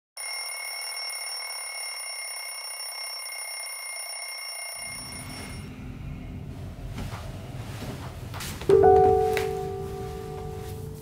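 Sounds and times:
phone alarm high-pitched tone: 0.2 - 5.7
music: 5.6 - 11.0.

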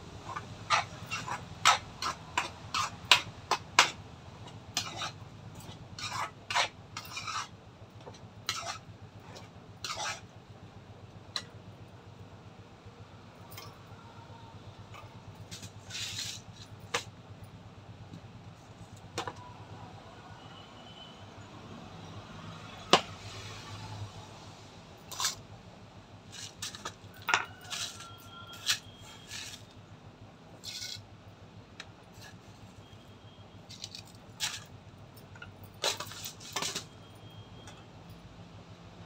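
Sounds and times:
utensils clicking and clinking: 33.7 - 37.0.

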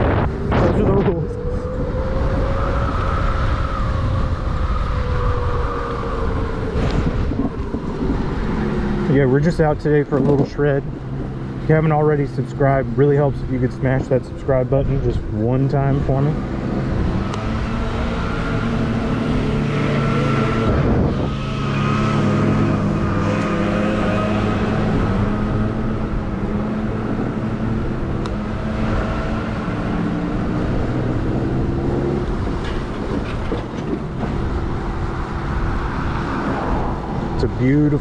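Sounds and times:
road noise: 0.0 - 38.0
wind buffeting: 0.0 - 38.0.

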